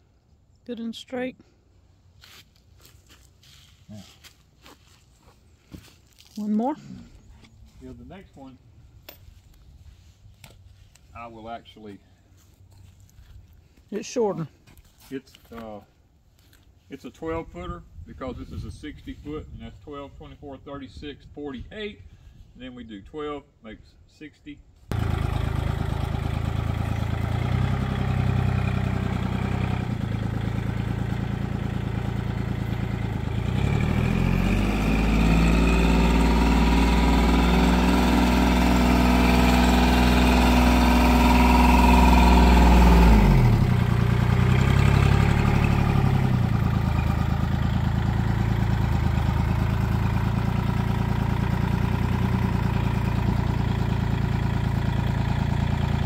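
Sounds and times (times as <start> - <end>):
tractor diesel engine revving: 24.9 - 56.0.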